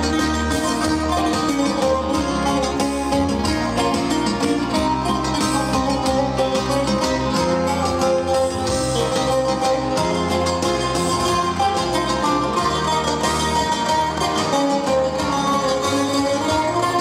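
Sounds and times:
bass and keyboard accompaniment: 0.0s - 17.0s
bouzoukis playing fast melody: 0.0s - 17.0s.

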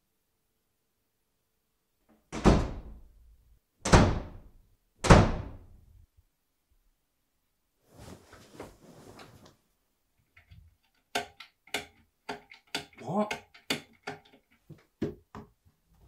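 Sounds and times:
heavy bangs on a door: 2.4s - 3.0s, 3.8s - 5.7s.

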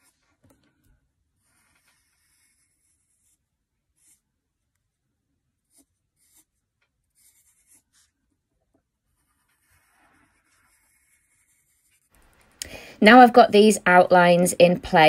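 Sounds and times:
pencil scratching on paper: 0.0s - 0.5s, 1.4s - 4.9s, 5.6s - 12.3s.

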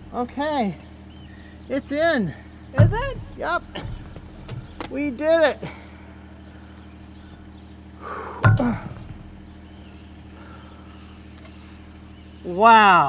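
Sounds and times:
low machine hum: 0.0s - 13.0s
short falling grunt: 8.3s - 9.1s.

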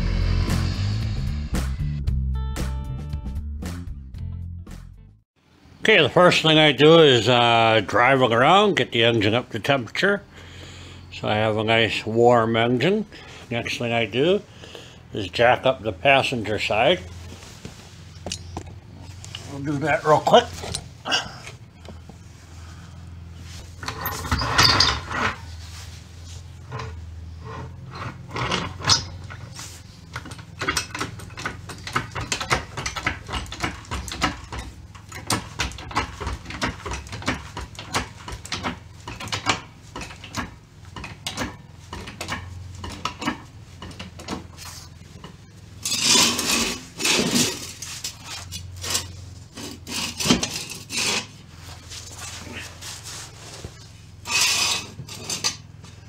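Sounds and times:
metal scraping on concrete: 23.2s - 55.9s
floor jack creaking and clicking: 23.5s - 25.9s, 26.5s - 56.0s.

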